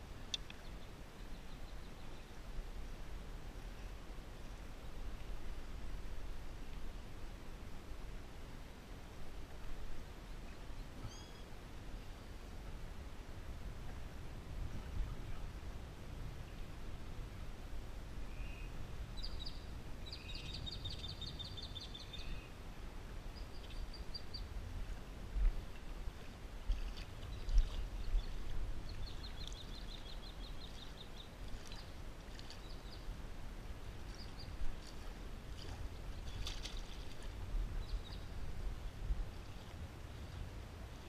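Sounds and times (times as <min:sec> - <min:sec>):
wind rumble on microphone: 0:00.0 - 0:41.0
songbird trilling and chirping: 0:27.3 - 0:31.9.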